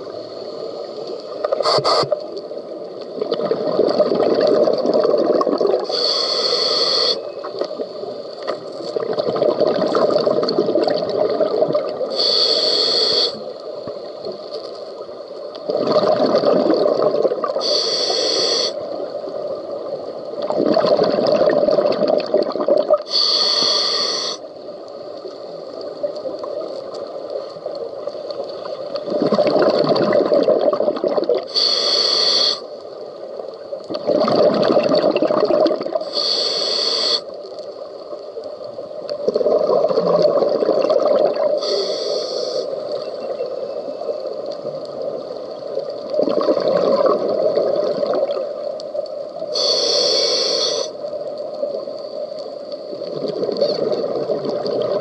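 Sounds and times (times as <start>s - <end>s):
regulator inhale hiss: 0.1s - 2.4s, 5.8s - 8.6s, 12.0s - 14.2s, 17.5s - 19.4s, 23.0s - 24.7s, 31.4s - 33.0s, 36.0s - 37.7s, 41.5s - 43.0s, 49.4s - 53.1s
exhaled bubbles rushing: 3.2s - 5.9s, 9.0s - 12.1s, 15.7s - 17.6s, 20.4s - 23.1s, 29.0s - 31.5s, 33.9s - 36.1s, 39.2s - 41.6s, 45.9s - 48.5s, 53.0s - 55.0s.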